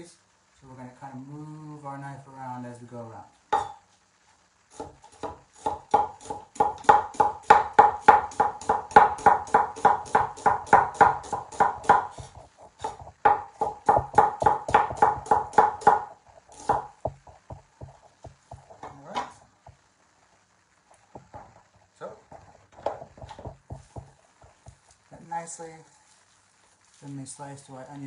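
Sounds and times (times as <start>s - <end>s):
cleaver chopping on wooden board: 4.8s - 12.1s, 12.8s - 17.2s.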